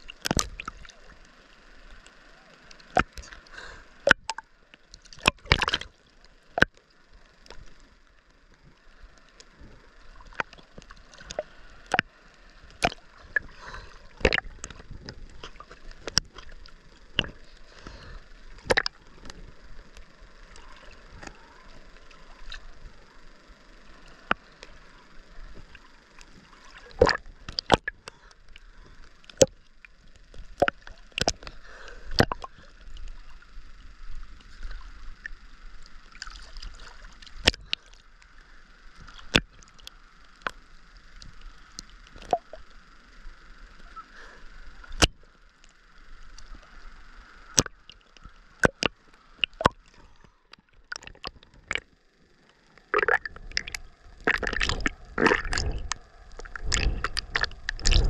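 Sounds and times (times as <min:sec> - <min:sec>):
water sloshing and lapping: 0:02.8 - 0:06.0, 0:09.4 - 0:19.4, 0:25.6 - 0:29.7, 0:36.1 - 0:38.0, 0:47.5 - 0:52.0, 0:52.9 - 0:58.0
waves splashing against camera: 0:52.9 - 0:58.0.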